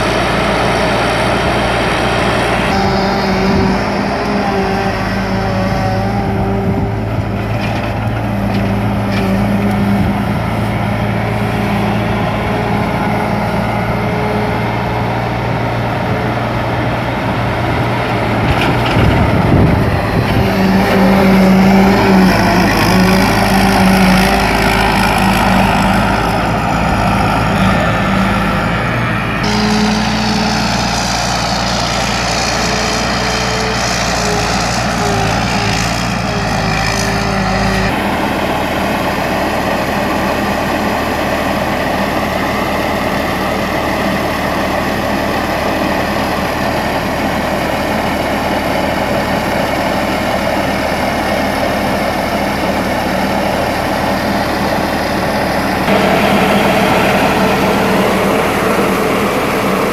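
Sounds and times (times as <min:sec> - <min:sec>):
combine harvester running: 0:00.0 - 0:59.9
auger emptying grain: 0:55.5 - 0:59.9.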